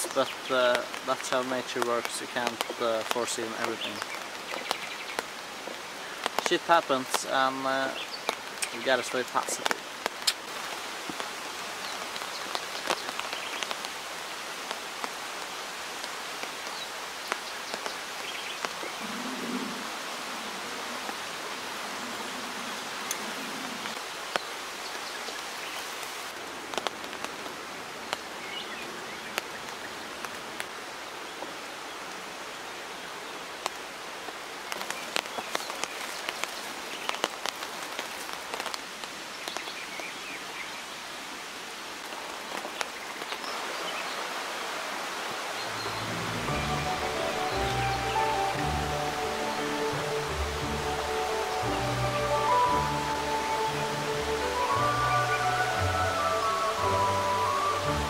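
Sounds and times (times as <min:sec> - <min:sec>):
sharp raindrop hits: 0:00.0 - 0:14.0, 0:33.6 - 0:40.1
heavy rain falling: 0:00.0 - 0:58.0.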